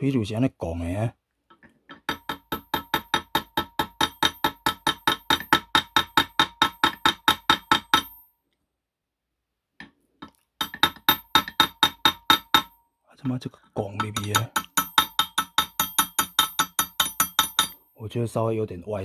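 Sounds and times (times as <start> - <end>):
metal on metal tapping: 1.5 - 8.2, 9.8 - 12.8, 13.8 - 17.9.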